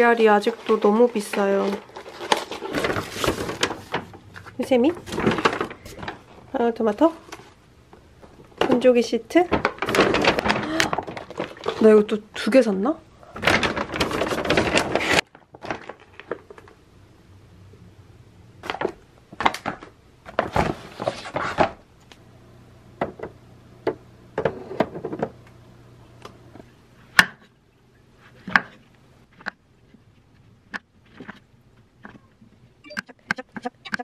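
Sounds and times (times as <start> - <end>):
packaging rustling: 0.1 - 7.6, 9.3 - 12.1, 13.2 - 16.8.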